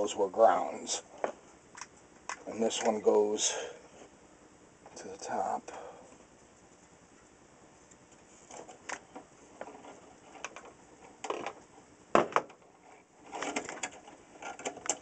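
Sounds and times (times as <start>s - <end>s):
clicks and rattles of handled wires: 1.2s - 3.0s, 6.1s - 15.0s.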